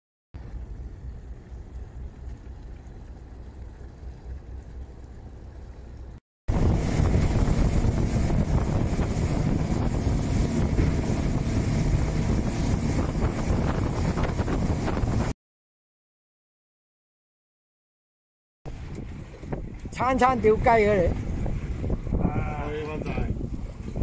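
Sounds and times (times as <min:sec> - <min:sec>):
motorboat engine running: 0:00.4 - 0:15.3
low rumble: 0:00.4 - 0:15.4
wind buffeting microphone: 0:06.5 - 0:15.4, 0:18.7 - 0:24.0.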